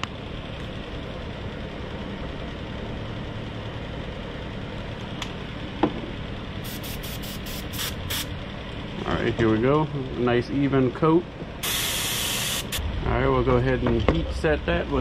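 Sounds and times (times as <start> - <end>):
air compressor running: 6.4 - 8.6, 11.5 - 12.8
airbrush hissing spray: 6.6 - 8.3, 11.6 - 12.8.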